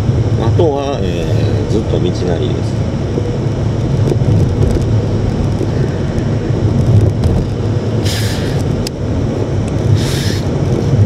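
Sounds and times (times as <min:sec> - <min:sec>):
car engine and tyre rumble: 0:00.0 - 0:11.0
short hiss: 0:08.0 - 0:08.6, 0:09.9 - 0:10.5.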